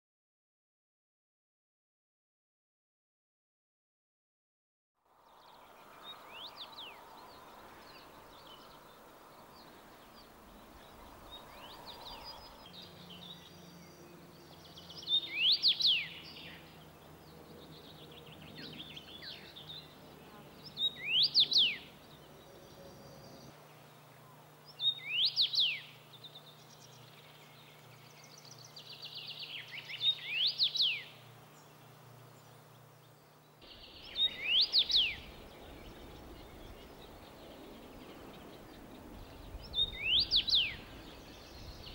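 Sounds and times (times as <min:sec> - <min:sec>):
faint bird chirping: 0:05.1 - 0:41.9
bird whistling song: 0:10.1 - 0:16.6, 0:20.8 - 0:22.1, 0:24.8 - 0:31.2, 0:33.7 - 0:37.7, 0:38.7 - 0:41.9.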